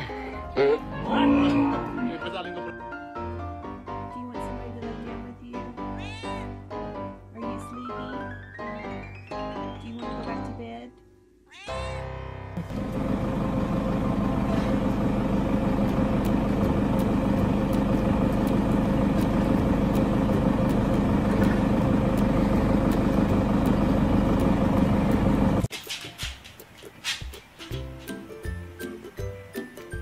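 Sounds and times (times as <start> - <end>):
small vehicle engine running: 12.6 - 25.7.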